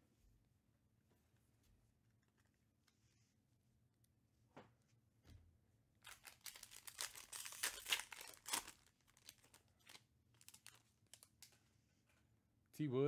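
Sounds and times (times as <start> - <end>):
foil wrapper tearing and crinkling: 6.0 - 11.4.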